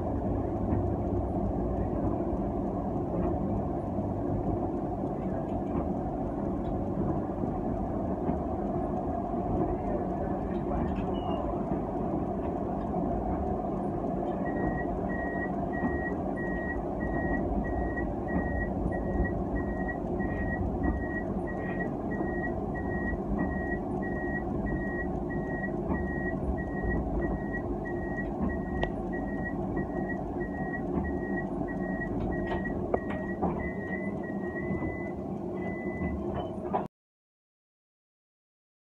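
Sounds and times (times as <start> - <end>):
tram running rumble: 0.0 - 36.9
electronic warning beeps: 11.1 - 11.5, 14.4 - 36.6.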